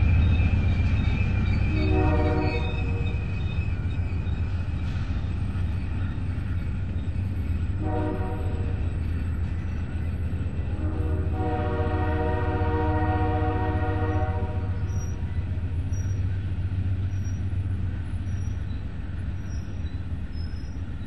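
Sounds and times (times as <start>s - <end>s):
train cars rumbling past: 0.0s - 21.0s
train horn blast: 1.7s - 3.0s, 7.8s - 8.9s, 10.6s - 15.0s.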